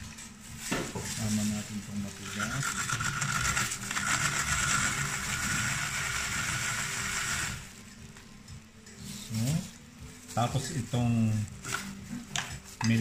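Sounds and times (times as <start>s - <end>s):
hand-cranked food processor grinding: 2.2s - 7.7s.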